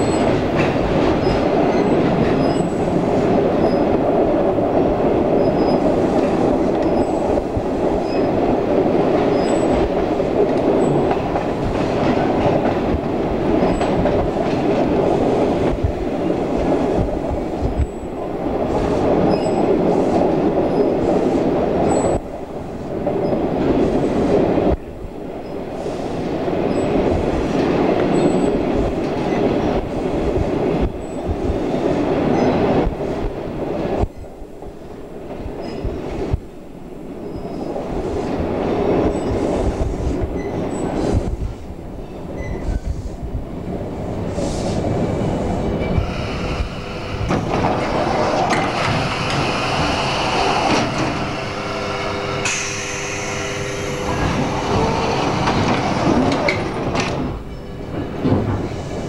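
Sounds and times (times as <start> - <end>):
train wheels rumbling on rails: 0.0 - 59.0
faint high squeaks: 42.1 - 42.9.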